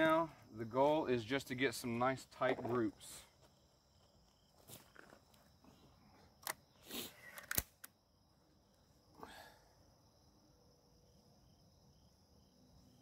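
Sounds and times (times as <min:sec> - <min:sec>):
air rifle clicks: 0:07.3 - 0:08.0.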